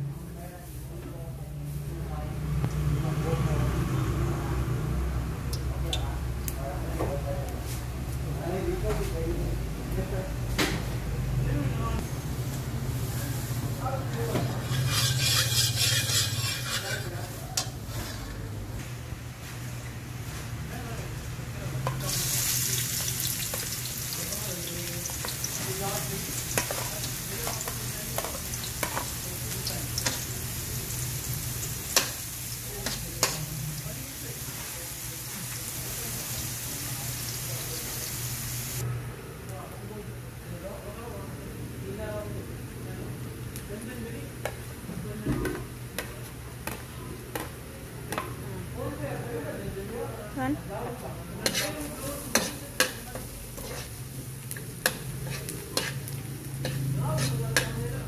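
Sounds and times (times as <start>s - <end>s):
metal spoon clinking against pan: 14.6s - 17.8s, 51.5s - 53.9s
onions sizzling in hot oil: 21.8s - 38.8s, 51.4s - 58.0s.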